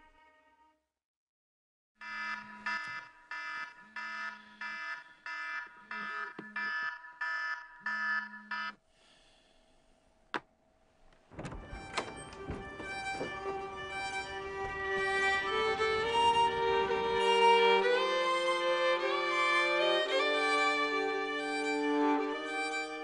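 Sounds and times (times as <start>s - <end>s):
alarm clock beeping: 2.0s - 8.8s.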